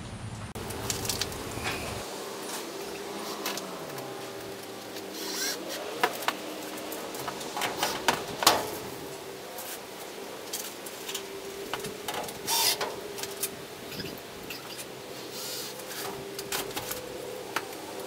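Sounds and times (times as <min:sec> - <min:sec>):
screwdriver whirring: 0:05.2 - 0:06.2, 0:12.0 - 0:17.0.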